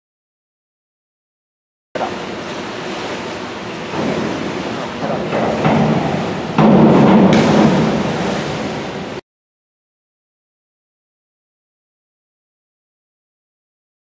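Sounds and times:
pool hall noise: 2.0s - 9.2s
diver splashing into pool: 3.8s - 9.2s.

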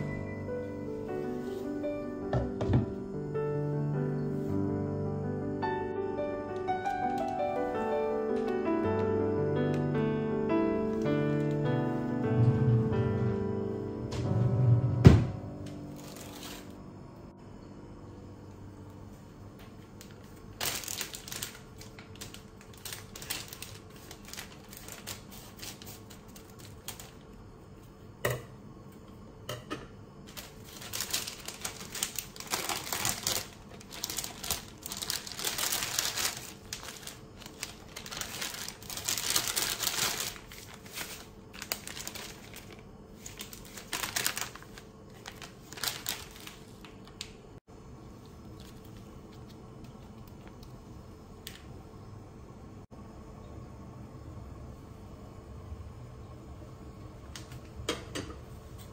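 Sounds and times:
faint steady hum: 0.0s - 58.9s
plastic packet crinkling: 6.6s - 8.5s, 15.9s - 16.8s, 20.0s - 27.3s, 30.3s - 47.4s.

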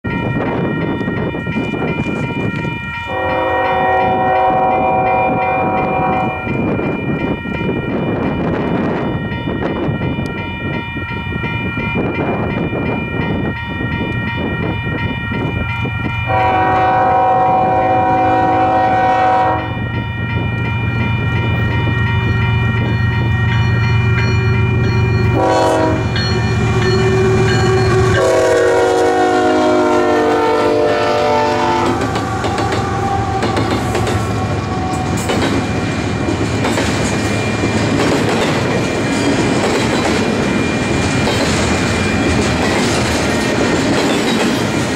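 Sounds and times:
diesel locomotives rumbling: 0.0s - 44.9s
train air horn blasts: 3.1s - 6.6s, 16.3s - 19.8s, 25.3s - 35.3s
wheels clacking over rail joints: 31.8s - 44.9s.

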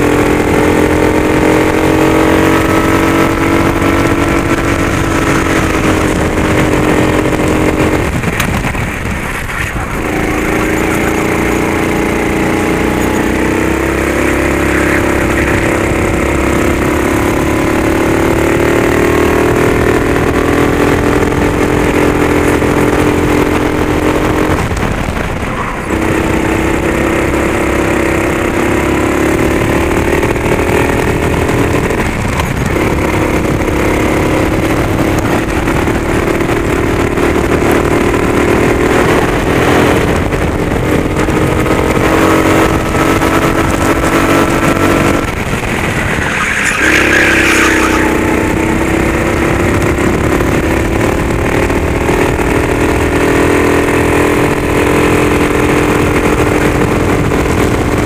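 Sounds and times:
kart engine at full throttle: 0.0s - 58.0s.

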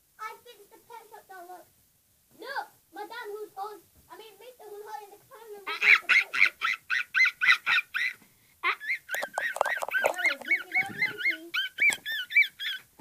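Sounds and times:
high-pitched squeaky calls: 5.7s - 13.0s.

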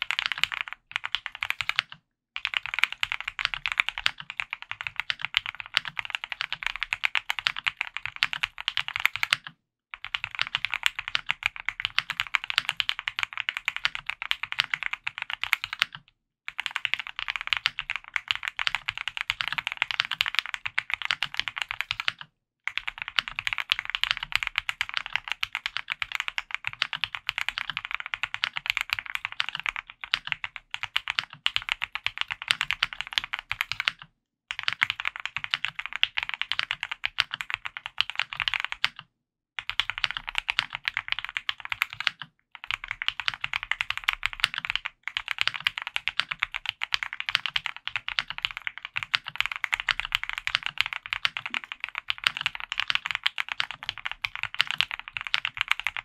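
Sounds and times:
fast typing on mechanical keyboard: 0.0s - 56.0s.

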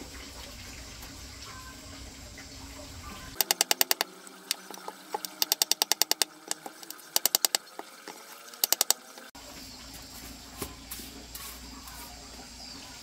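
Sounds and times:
rapid sharp tapping: 3.4s - 7.7s, 8.6s - 9.0s.

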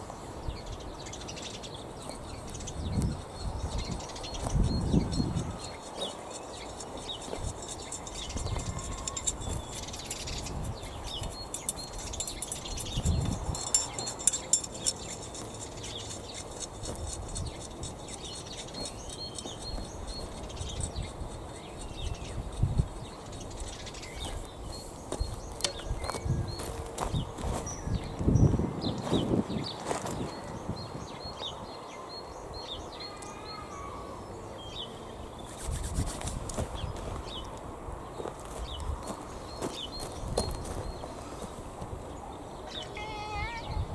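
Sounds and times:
birds chirping: 0.0s - 43.9s
garden rake scraping soil: 3.8s - 26.6s
footsteps on wood chips: 14.9s - 27.8s, 38.2s - 41.6s.

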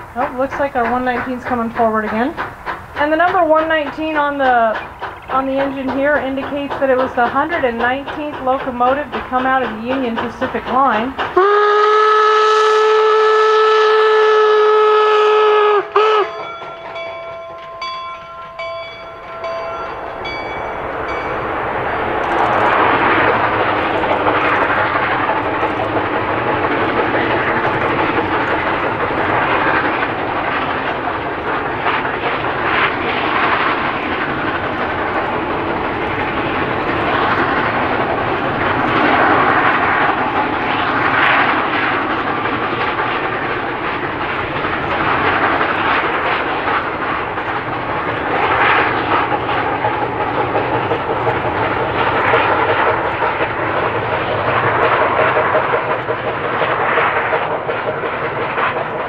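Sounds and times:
rolling train wheels: 0.0s - 59.0s
steam exhaust chuffing: 0.0s - 59.0s
steam whistle blast: 11.4s - 16.5s
locomotive bell ringing: 15.9s - 24.8s.

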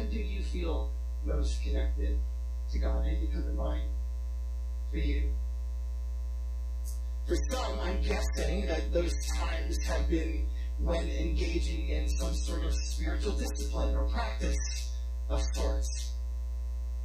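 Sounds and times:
man speaking: 0.0s - 3.9s, 4.9s - 5.4s, 7.3s - 15.9s
electrical mains hum: 0.0s - 17.0s.

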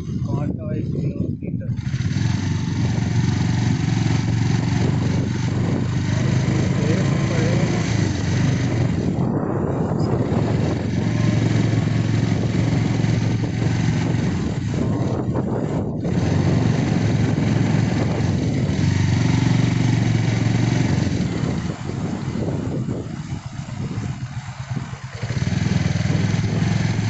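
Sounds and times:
motorcycle engine running: 0.0s - 27.0s
wind and road noise: 0.0s - 27.0s.

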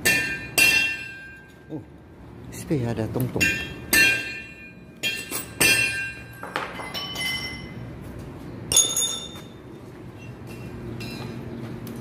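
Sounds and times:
hammer clanging on steel: 0.0s - 1.6s, 3.4s - 7.7s.

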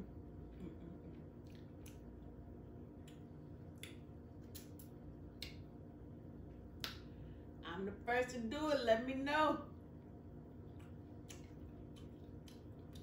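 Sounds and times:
steady low hum: 0.0s - 13.0s
person chewing food: 0.4s - 5.7s, 10.5s - 13.0s.

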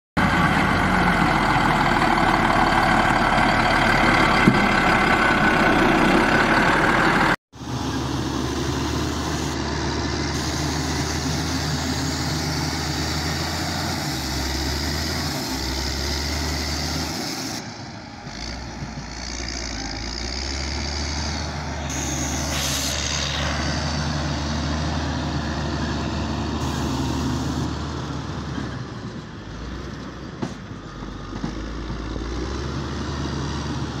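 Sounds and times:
grader diesel engine running: 0.2s - 34.0s
blade scraping dirt: 18.3s - 24.3s.

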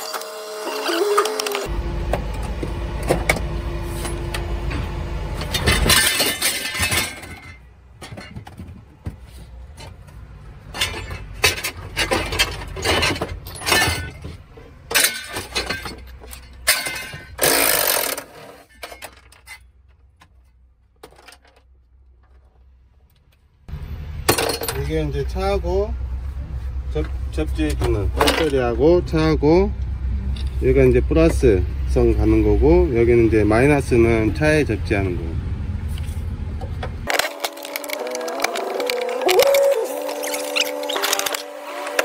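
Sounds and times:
metal clinks and knocks: 10.6s - 22.6s
cordless power tool bursts: 17.4s - 18.3s.

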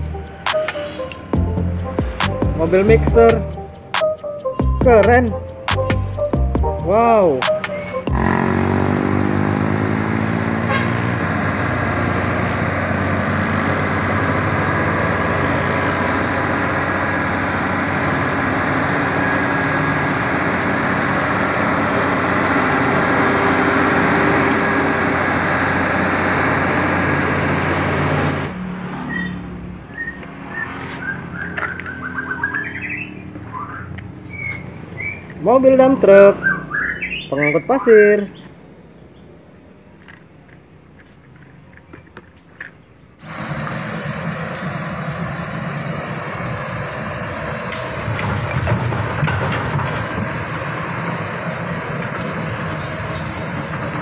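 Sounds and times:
truck engine humming: 0.0s - 54.0s
small birds chirping: 29.1s - 35.5s, 36.3s - 40.0s.

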